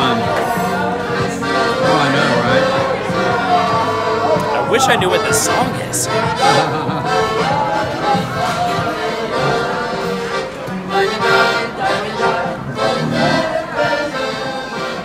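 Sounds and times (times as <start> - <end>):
piano accordion playing a tune: 0.0 - 15.0
people talking: 4.4 - 7.1.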